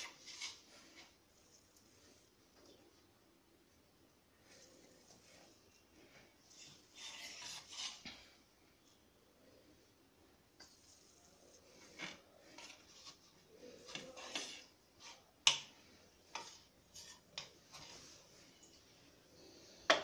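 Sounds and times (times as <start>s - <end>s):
knife tapping and scraping a plate: 13.8s - 18.0s.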